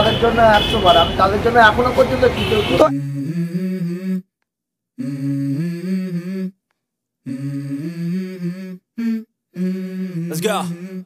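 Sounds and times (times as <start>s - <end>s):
hummed vocal melody: 2.8s - 4.3s, 5.0s - 6.6s, 7.2s - 11.0s.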